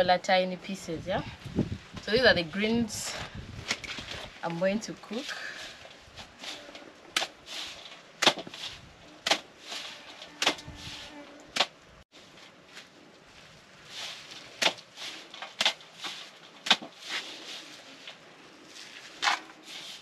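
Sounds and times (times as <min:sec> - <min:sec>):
leaves rustling: 0:00.0 - 0:20.0
leaves slapped into metal tray: 0:08.2 - 0:09.8, 0:14.6 - 0:17.0.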